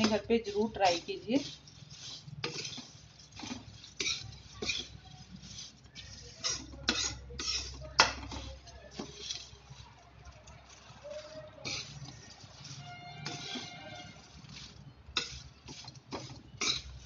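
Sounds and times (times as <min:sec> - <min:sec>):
metal spatula scraping a pan: 0:00.0 - 0:17.0.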